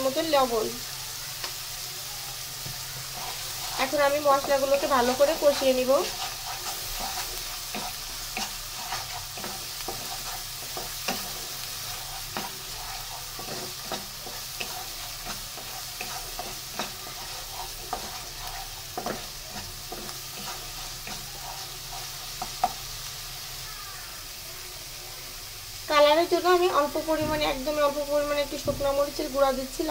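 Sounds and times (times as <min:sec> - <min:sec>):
paste sizzling in hot oil: 0:00.0 - 0:29.9
spatula scraping and tapping wok: 0:01.4 - 0:23.4.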